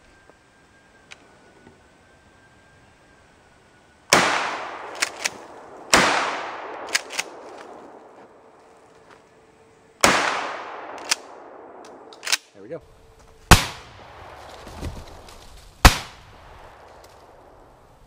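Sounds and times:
shotgun blasts with echo: 4.1 - 7.5, 10.0 - 12.4, 13.5 - 14.9, 15.8 - 17.1.

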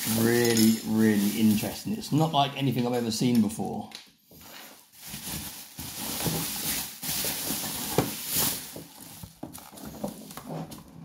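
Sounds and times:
bubble wrap crinkling: 0.0 - 2.3, 4.4 - 10.8
plastic box handling: 6.0 - 10.9.

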